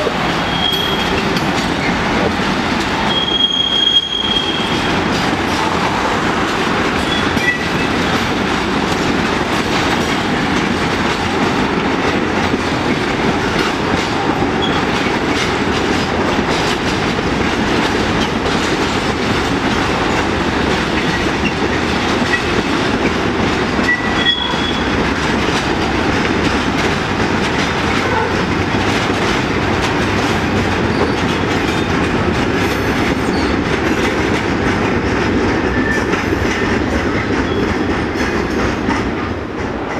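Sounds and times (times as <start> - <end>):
train wheels rumbling and clacking: 0.0 - 39.9
high wheel squeals: 0.4 - 2.0, 3.1 - 4.9, 23.9 - 24.9.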